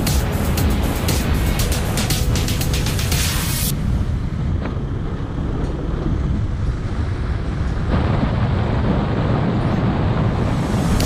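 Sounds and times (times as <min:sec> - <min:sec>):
motorcycle engine: 0:00.0 - 0:06.9
wind rush over microphone: 0:00.0 - 0:11.0.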